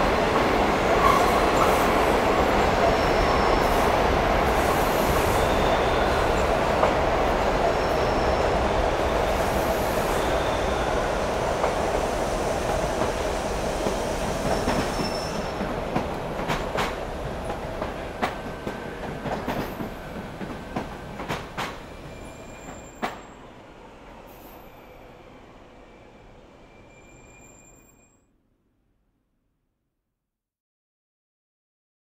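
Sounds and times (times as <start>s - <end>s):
subway train rumbling on rails: 0.0s - 28.1s
clicks and clacks: 15.6s - 21.8s.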